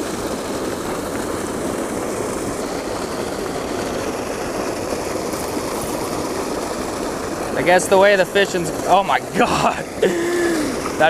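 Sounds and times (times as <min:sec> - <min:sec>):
water pouring into creek: 0:00.0 - 0:11.0.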